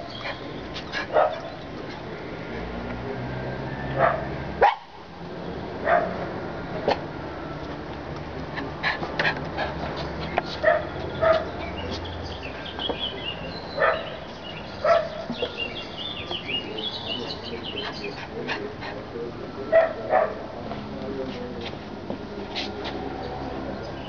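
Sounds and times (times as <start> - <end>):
small dog barking: 4.0 - 5.0, 5.8 - 6.2, 10.6 - 11.5, 13.8 - 14.2, 14.8 - 15.2.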